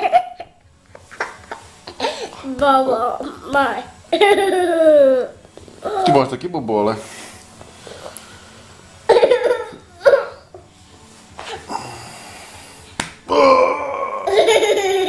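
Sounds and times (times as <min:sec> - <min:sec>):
toddler laughing: 0:04.1 - 0:06.2, 0:09.1 - 0:10.4, 0:14.2 - 0:15.0
hand slap: 0:12.9 - 0:13.3.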